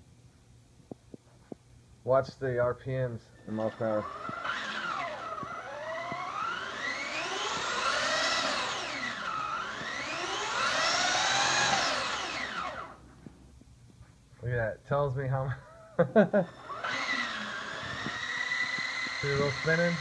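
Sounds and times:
toy car motor whining: 3.4s - 13.0s, 16.4s - 20.0s.

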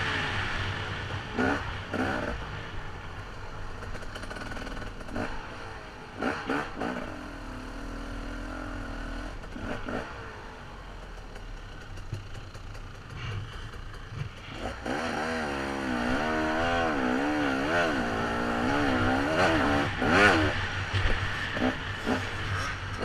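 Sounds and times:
dirt bike engine running: 10.9s - 23.0s.

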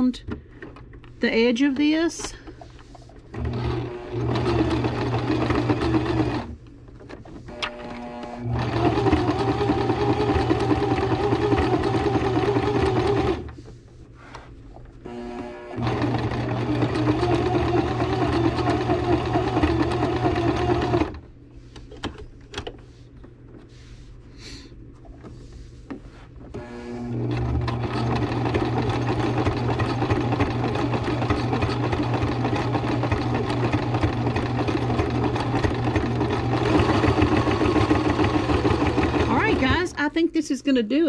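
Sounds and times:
electric sewing machine running: 3.3s - 6.6s, 7.5s - 13.6s, 15.1s - 21.2s, 26.6s - 40.0s.

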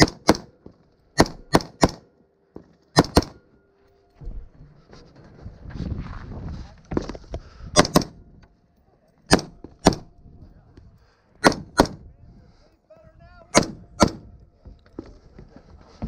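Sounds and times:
rifle shots: 0.0s - 0.5s, 1.2s - 2.1s, 2.9s - 3.4s, 7.8s - 8.2s, 9.3s - 10.1s, 11.4s - 12.0s, 13.5s - 14.3s.

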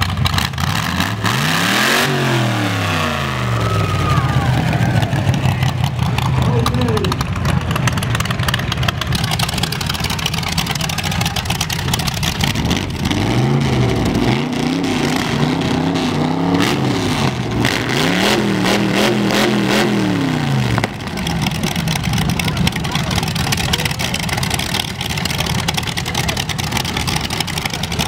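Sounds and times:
engine rumbling: 0.0s - 28.0s
unmuffled engine revving: 0.0s - 28.0s.

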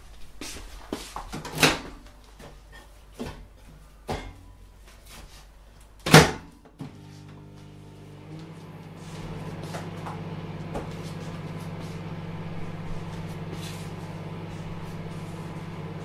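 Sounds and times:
microwave door slam: 6.1s - 6.5s
microwave humming: 6.1s - 16.0s.

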